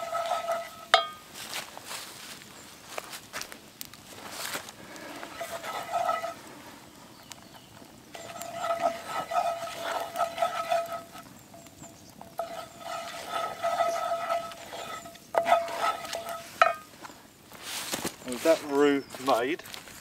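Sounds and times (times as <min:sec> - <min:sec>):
pan squealing: 0:00.0 - 0:01.2, 0:05.1 - 0:06.5, 0:07.8 - 0:16.9
wooden spoon scraping skillet: 0:00.0 - 0:02.1, 0:04.1 - 0:19.4.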